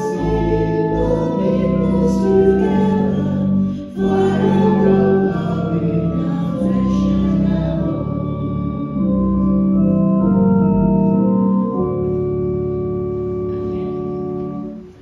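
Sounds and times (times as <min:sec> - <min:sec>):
hymn singing: 0:00.0 - 0:12.5
organ playing: 0:00.0 - 0:15.0.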